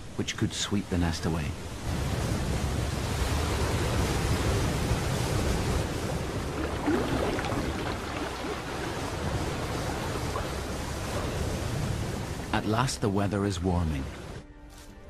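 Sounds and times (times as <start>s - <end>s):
water rushing over rocks: 0.1s - 14.4s.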